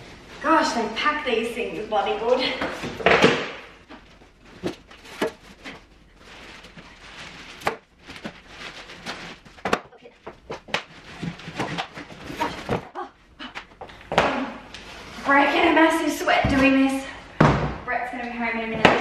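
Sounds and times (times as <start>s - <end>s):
cardboard scraping and rustling: 4.0s - 12.9s.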